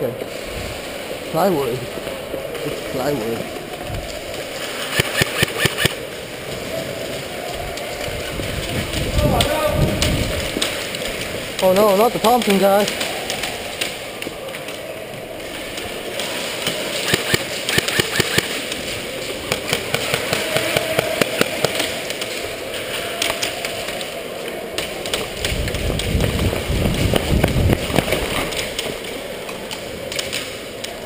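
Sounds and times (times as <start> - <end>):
airsoft guns firing: 4.9 - 6.0, 16.8 - 18.8, 19.4 - 22.2
rumble of movement on microphone: 6.0 - 11.6, 24.9 - 29.7.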